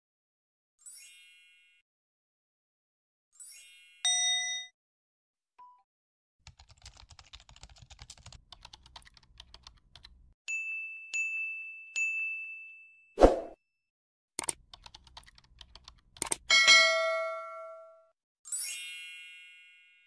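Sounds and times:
rapid keyboard typing clicks: 0:06.4 - 0:10.3, 0:14.4 - 0:16.5
sparkly chime: 0:18.5 - 0:20.0.

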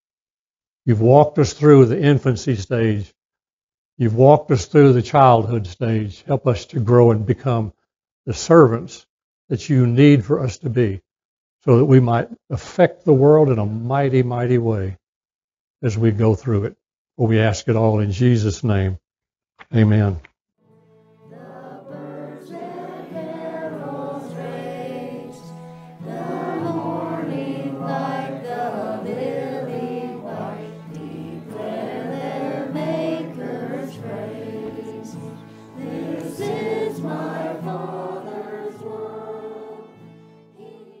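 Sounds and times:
choir singing: 0:21.2 - 0:41.0.

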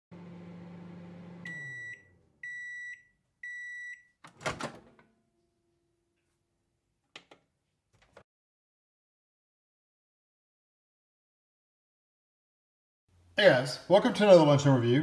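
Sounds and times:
microwave hum: 0:00.1 - 0:05.7
microwave beeps: 0:01.3 - 0:04.2.

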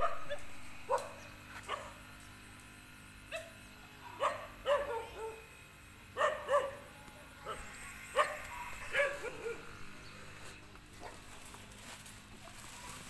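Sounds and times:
dog yipping: 0:04.2 - 0:05.4, 0:06.2 - 0:06.8, 0:07.4 - 0:09.7.

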